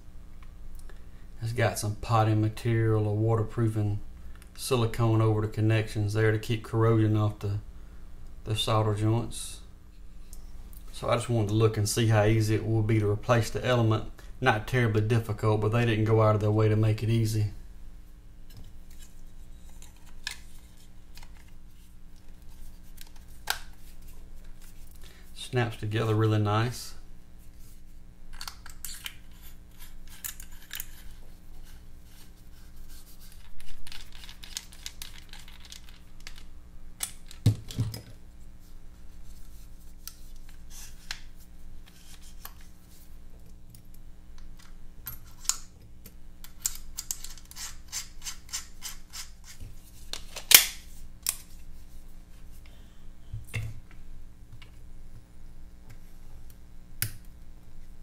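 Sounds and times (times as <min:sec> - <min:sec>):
small clicks taps and scrapes: 0:33.2 - 0:38.0.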